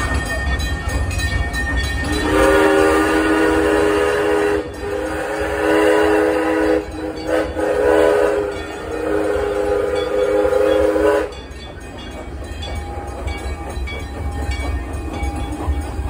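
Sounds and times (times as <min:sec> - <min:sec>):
low train rumble: 0:00.0 - 0:16.0
steam locomotive whistle: 0:02.0 - 0:11.6.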